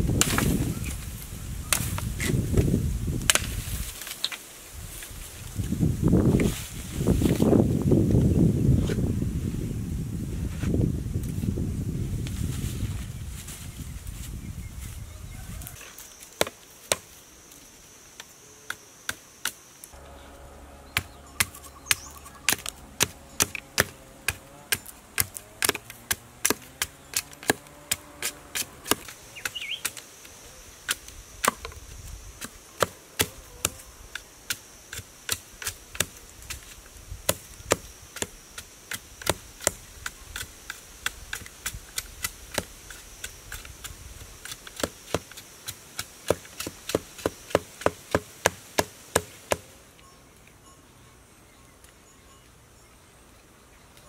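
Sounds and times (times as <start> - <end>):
high insect buzz: 15.9 - 49.8
knife chopping bamboo: 21.0 - 30.0, 32.4 - 43.7, 44.4 - 49.7.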